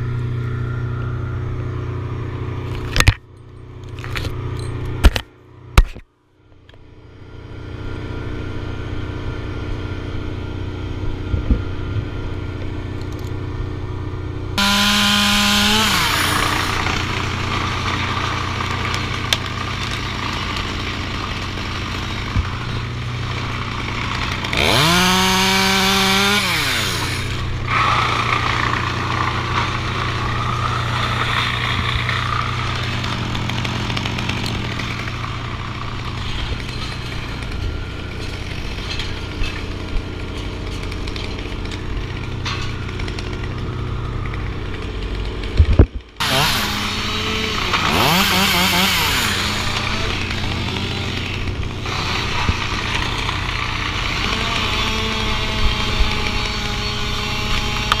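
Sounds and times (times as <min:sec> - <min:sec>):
chainsaw cutting wood: 0:14.6 - 0:58.0.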